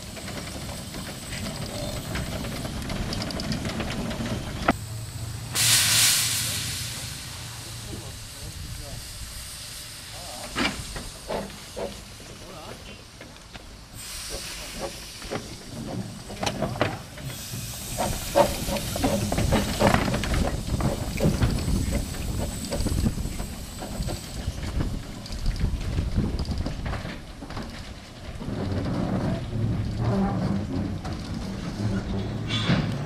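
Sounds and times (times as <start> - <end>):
running gear clanks and knocks: 0.0 - 4.8, 14.8 - 17.3, 18.0 - 33.0
steam hissing: 4.4 - 13.2, 13.8 - 25.7.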